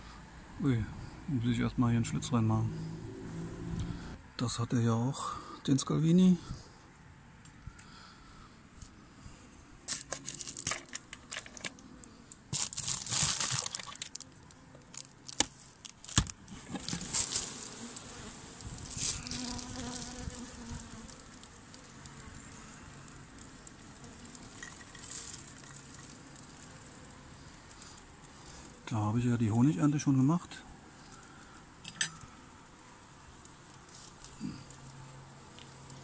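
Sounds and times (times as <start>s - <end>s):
rustling and clicking handling: 9.9s - 18.1s, 23.1s - 26.8s
honeybees buzzing: 16.5s - 28.9s, 30.8s - 36.0s.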